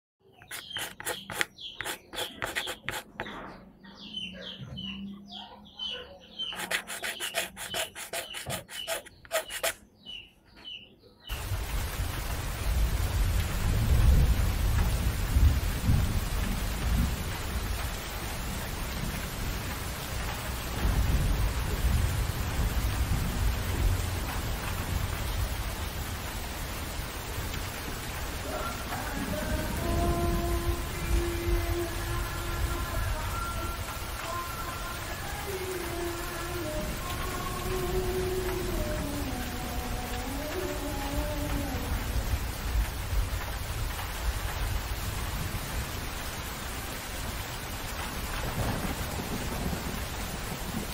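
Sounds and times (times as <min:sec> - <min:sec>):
short bird-like chirps: 0:00.3 - 0:03.4
pencil scratching on paper: 0:00.4 - 0:03.3, 0:06.4 - 0:09.8.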